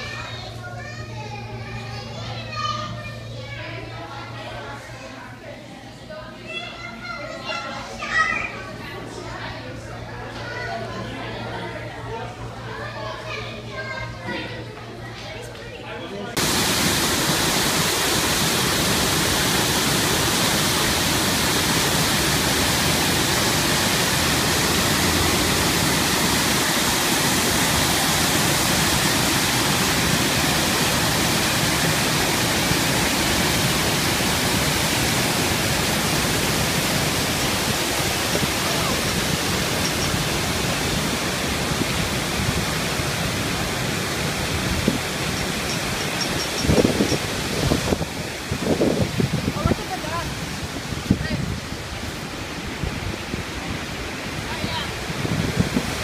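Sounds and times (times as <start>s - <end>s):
waterfall rushing: 16.3s - 56.0s.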